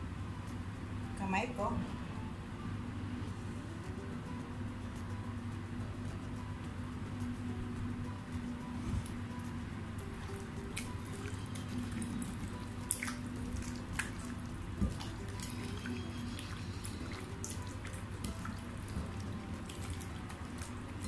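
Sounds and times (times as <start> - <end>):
hands squelching wet meat: 10.3 - 21.0.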